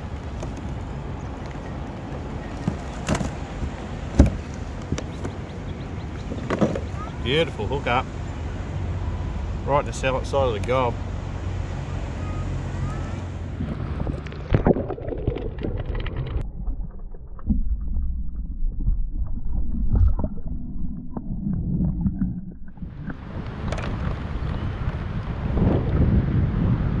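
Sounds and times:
muffled underwater sloshing and gurgling: 13.0 - 24.9
wind on microphone: 13.4 - 16.4, 18.8 - 27.0.

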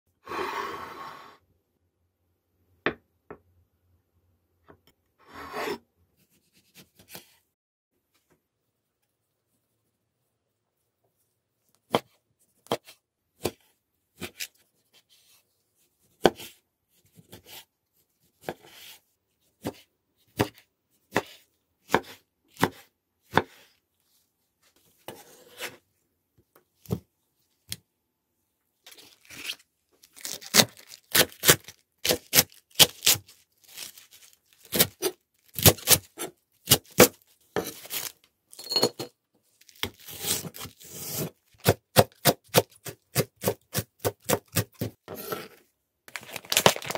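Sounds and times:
knife chopping on wooden board: 20.4 - 23.6.

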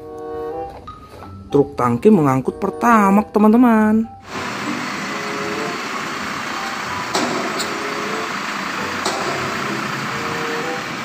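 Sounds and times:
truck diesel engine running: 4.2 - 11.0.

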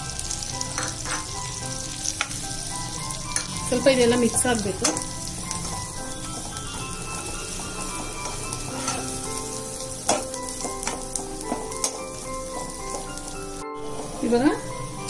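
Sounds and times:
chutney sizzling in butter: 0.0 - 15.0
spatula scraping and knocking pan: 0.7 - 1.4, 3.3 - 9.2.

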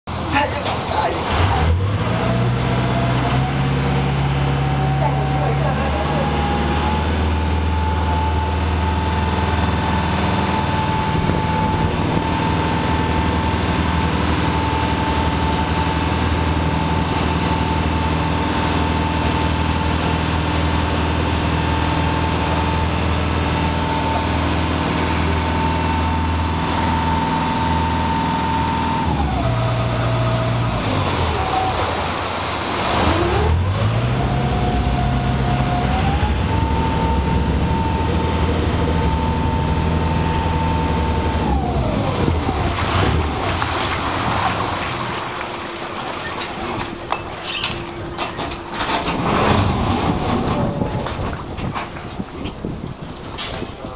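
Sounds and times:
boat engine running: 0.1 - 53.9
propeller wash churning: 30.2 - 34.7, 41.8 - 53.9.

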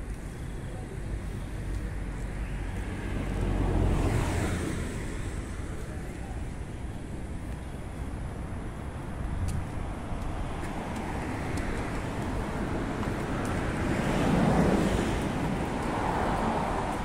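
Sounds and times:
vehicle approaching: 0.0 - 9.1
street traffic noise: 0.0 - 17.0.

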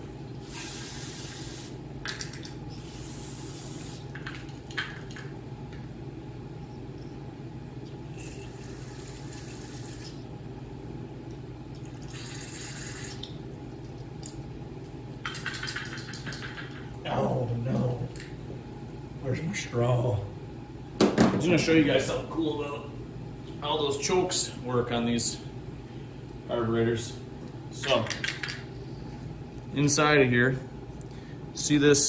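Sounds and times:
steady low hum: 0.0 - 32.0
aerosol spray hissing: 0.4 - 1.8.

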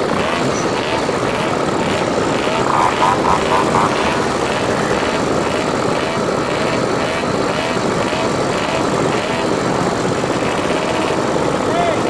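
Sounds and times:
moped engines running: 0.0 - 12.0
rising-and-falling tone: 2.4 - 6.2.

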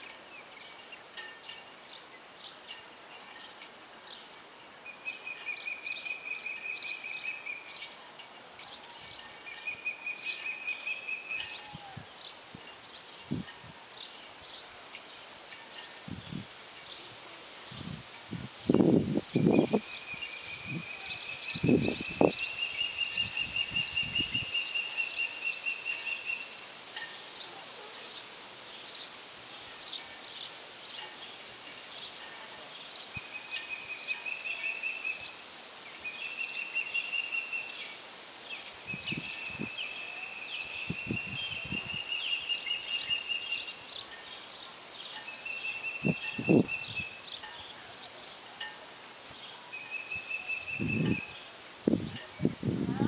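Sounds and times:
osprey whistled chirps: 9.5 - 11.6, 19.4 - 26.6, 36.0 - 38.0, 38.9 - 44.2, 45.1 - 47.2, 49.8 - 51.4.

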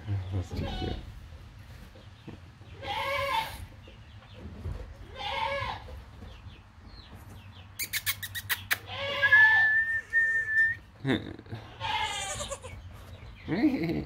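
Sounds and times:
goat kids bleating: 0.3 - 1.2, 2.6 - 3.8, 5.0 - 6.0, 8.6 - 9.8, 11.6 - 12.9
thin whistle-like tone: 9.3 - 10.8.

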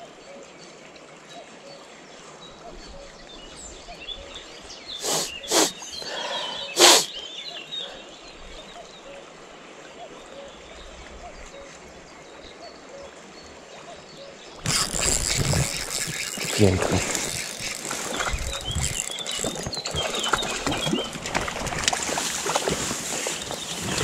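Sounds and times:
birds chirping: 3.6 - 9.2, 14.2 - 21.7, 22.6 - 24.0.

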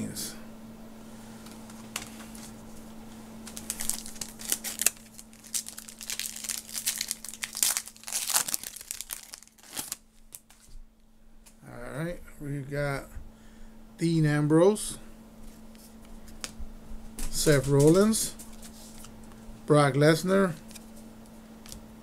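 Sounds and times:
plastic wrapper tearing and crinkling: 3.4 - 10.7.

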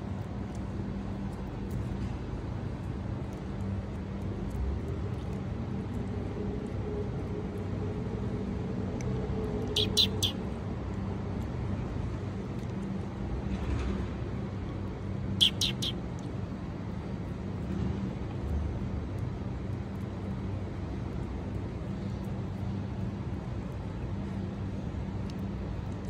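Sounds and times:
low mechanical hum: 0.0 - 26.0
short high-pitched chirps: 9.8 - 10.4, 15.4 - 16.0.

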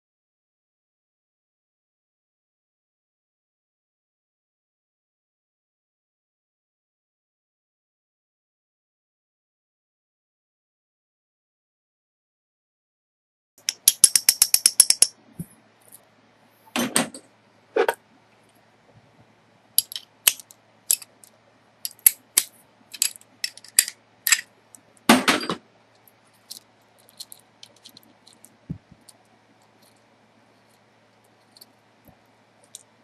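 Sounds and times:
metal tools clinking: 19.8 - 21.2, 23.0 - 24.4.

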